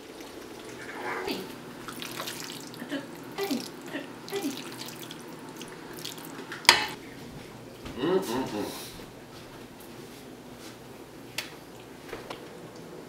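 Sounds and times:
wet squelches of noodles: 0:00.0 - 0:06.5.

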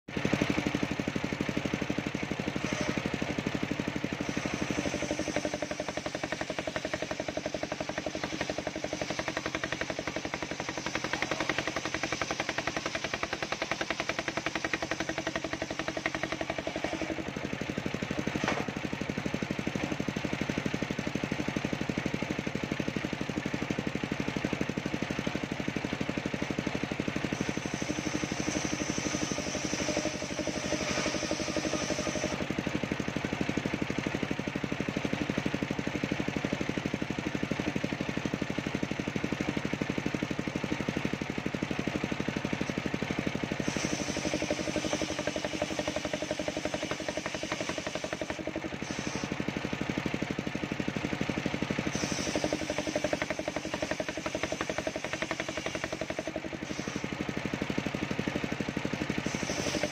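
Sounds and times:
circular saw ripping a log: 0:02.4 - 0:03.2, 0:03.9 - 0:17.4, 0:27.3 - 0:32.6, 0:43.5 - 0:49.4, 0:59.1 - 0:59.9.

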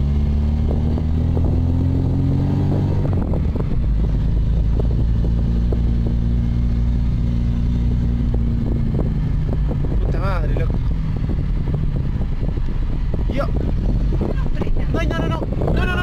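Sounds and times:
car engine labouring uphill: 0:00.0 - 0:16.0
car knocking and rattling: 0:08.0 - 0:16.0.

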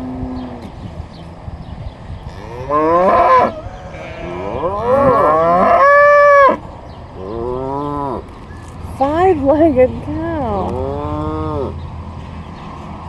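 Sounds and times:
cow mooing: 0:00.0 - 0:00.7, 0:02.3 - 0:06.6.

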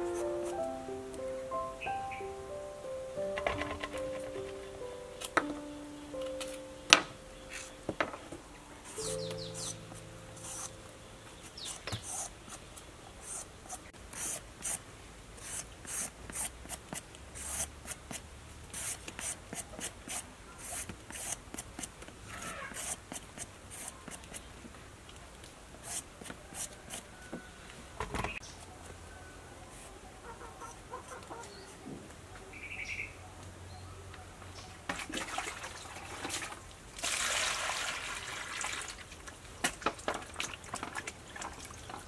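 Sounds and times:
vegetable peeler scraping: 0:10.4 - 0:10.8.

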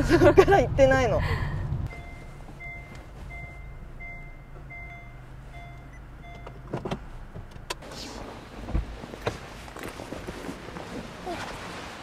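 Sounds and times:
low hum of car: 0:00.0 - 0:12.0
reverse warning beeper: 0:01.9 - 0:06.7.

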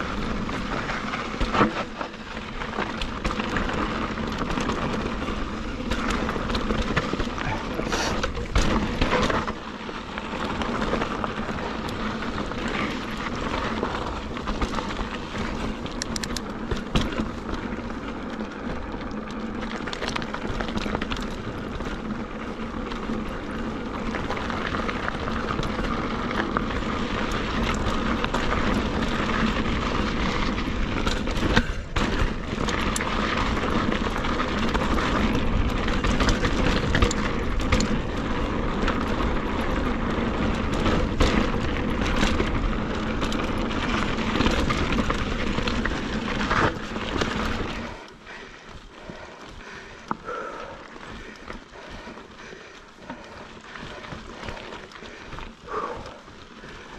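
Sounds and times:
bike tyres rolling on rocky dirt: 0:00.0 - 0:56.9
bike knocking on rocks: 0:01.0 - 0:17.7, 0:25.7 - 0:47.7.

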